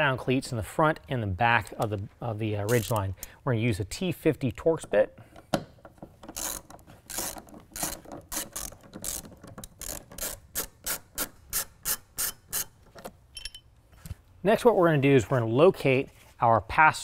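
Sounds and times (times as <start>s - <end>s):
hand ratchet clicking: 2.7s - 3.4s, 5.8s - 13.7s.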